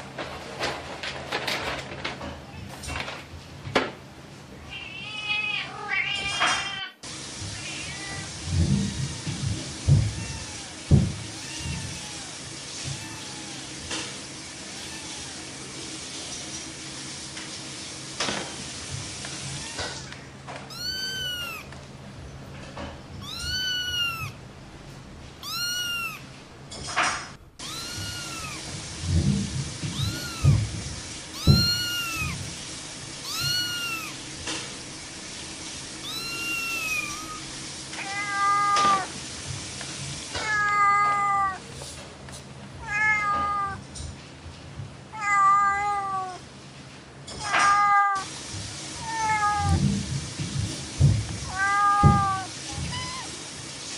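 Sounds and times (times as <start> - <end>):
cat meowing: 4.7 - 7.0, 7.6 - 8.4, 10.0 - 13.8, 14.6 - 15.5, 19.4 - 21.8, 23.2 - 24.4, 25.4 - 26.4, 27.6 - 28.7, 29.8 - 30.7, 31.3 - 32.5, 33.2 - 34.3, 36.0 - 39.1, 40.4 - 41.7, 42.8 - 43.8, 45.1 - 46.4, 49.0 - 49.8, 51.5 - 53.4
dull thumps: 29.0 - 32.6.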